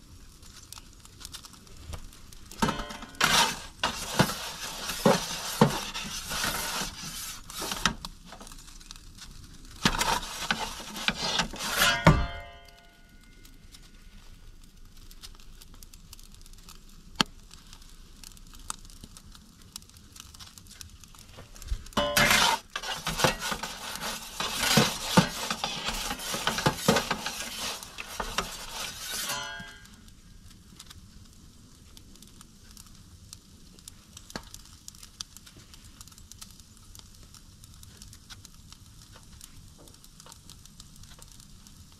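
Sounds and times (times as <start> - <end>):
ringing metal clank: 2.6 - 3.4, 11.7 - 13.3, 22.0 - 22.6, 29.2 - 30.0
metal peel scraping on stone: 2.6 - 8.0, 9.8 - 12.9, 22.0 - 30.0.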